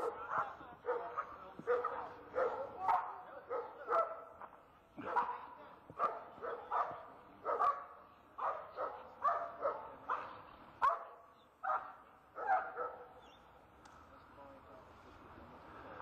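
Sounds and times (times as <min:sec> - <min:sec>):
dog barking: 0:00.0 - 0:04.4, 0:05.0 - 0:13.2.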